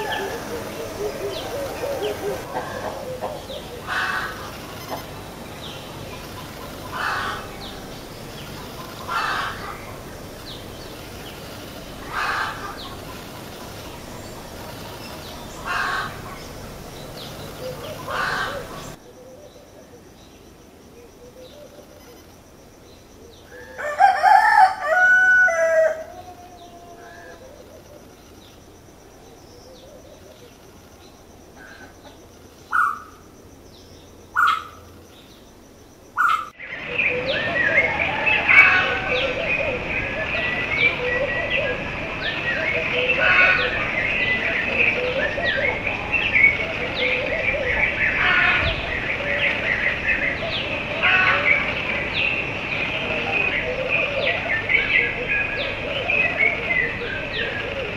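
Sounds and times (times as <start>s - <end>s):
rooster crowing: 0.0s - 5.0s, 23.5s - 27.4s
bird calling: 0.0s - 20.2s, 31.6s - 33.2s, 34.3s - 35.0s, 36.2s - 57.9s.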